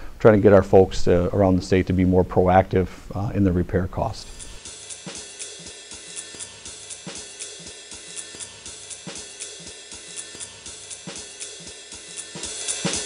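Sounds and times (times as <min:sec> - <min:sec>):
drum kit beat: 0:04.2 - 0:13.0
hi-hat ticks: 0:04.2 - 0:13.0.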